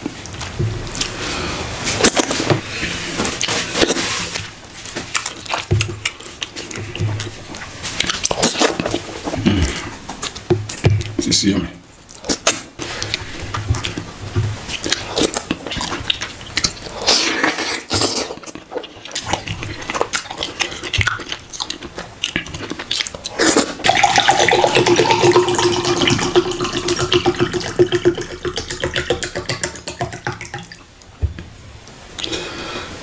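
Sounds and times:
wet chewing and smacking: 4.8 - 11.2, 12.0 - 30.9.

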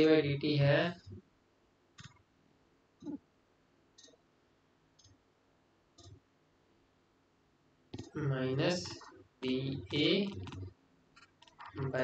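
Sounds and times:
computer mouse clicking: 2.0 - 2.2, 5.0 - 5.2, 6.0 - 6.2, 9.8 - 12.0.

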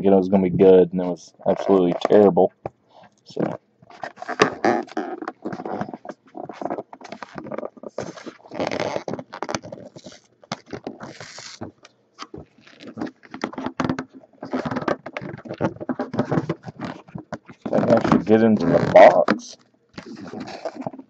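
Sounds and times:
fingers scraping cardboard box: 3.9 - 19.3, 20.0 - 21.0.

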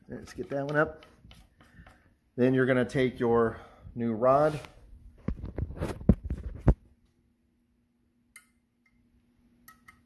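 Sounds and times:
sharp clicks and knocks: 0.1 - 2.1.

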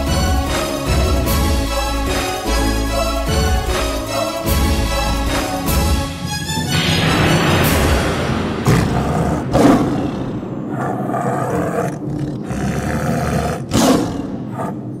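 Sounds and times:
tiger roaring and growling: 8.6 - 15.0.

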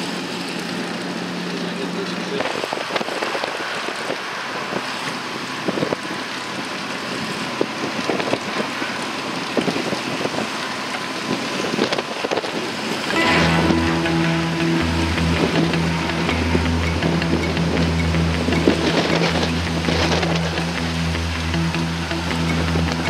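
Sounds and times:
water splashes: 0.0 - 23.0
wind buffeting microphone: 2.4 - 4.9, 7.1 - 13.2, 15.2 - 23.0
music with low pattern: 13.1 - 23.0
water slapping against hull: 18.5 - 21.0.

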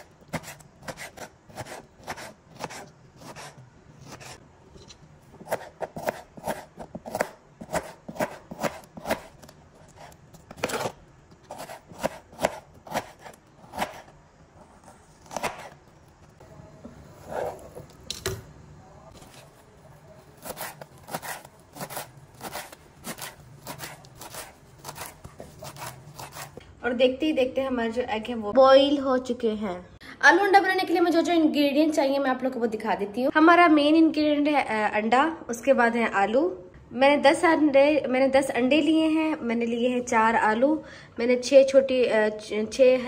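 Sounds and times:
knife chopping on cutting board: 0.0 - 4.4, 5.4 - 14.1, 15.2 - 15.8, 20.4 - 26.6.

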